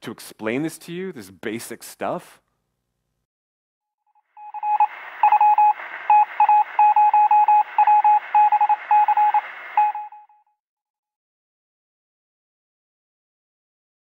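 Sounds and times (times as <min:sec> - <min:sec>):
electronic beeps: 0:04.3 - 0:10.4
thin radio-like hiss: 0:04.7 - 0:10.0.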